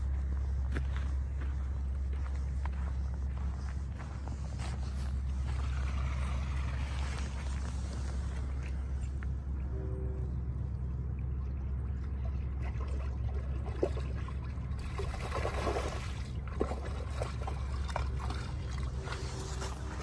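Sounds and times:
steady low hum: 0.0s - 20.0s
dog splashing through water: 12.5s - 20.0s.

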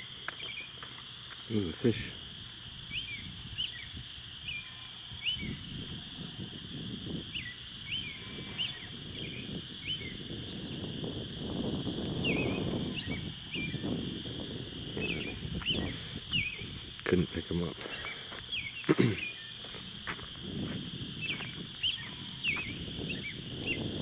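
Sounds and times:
steady high-pitched hum: 0.0s - 24.0s
small animals chirping: 7.3s - 11.1s, 14.8s - 20.3s, 21.2s - 23.9s.

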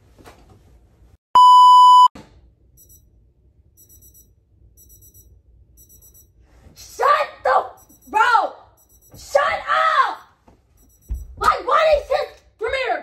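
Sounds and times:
alarm clock beeping: 2.8s - 3.1s, 3.8s - 6.4s, 7.7s - 9.3s, 10.8s - 11.4s.

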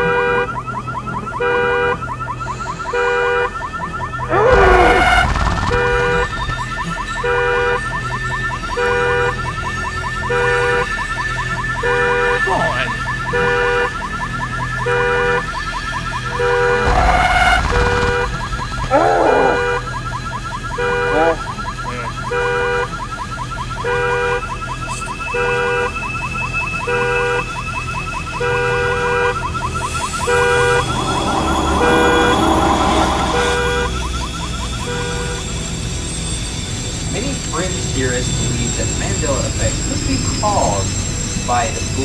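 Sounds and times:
electronic two-tone siren: 0.0s - 42.0s
rushing noise: 4.3s - 7.4s, 16.7s - 20.4s, 28.9s - 37.2s.

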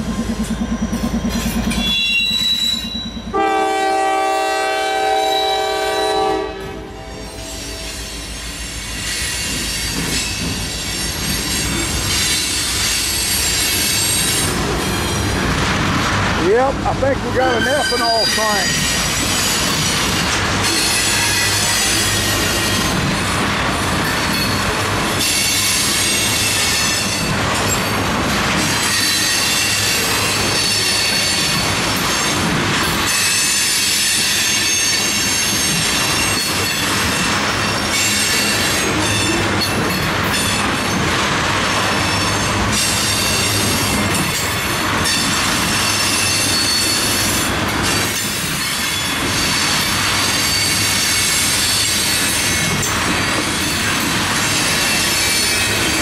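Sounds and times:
freight train wheels rumbling on rails: 0.0s - 56.0s
high wheel squeal: 0.3s - 3.4s, 7.0s - 15.4s, 17.3s - 23.1s, 28.8s - 32.4s, 33.0s - 36.9s, 45.0s - 56.0s.

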